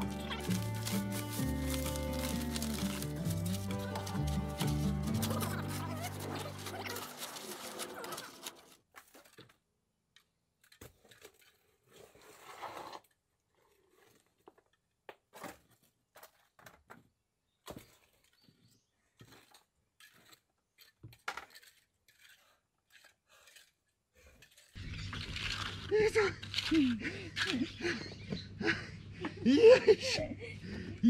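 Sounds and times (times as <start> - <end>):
hand tools scraping wet concrete: 0.0 - 9.4, 10.6 - 14.5, 19.2 - 27.7.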